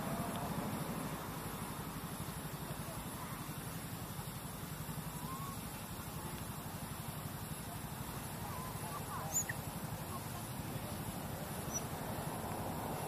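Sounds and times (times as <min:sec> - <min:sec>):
high squeaks and chirps: 0:08.5 - 0:10.3, 0:11.6 - 0:11.9.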